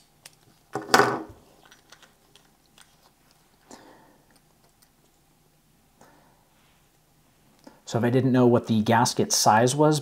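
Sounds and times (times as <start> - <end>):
light scrapes and small clicks: 1.6 - 3.6.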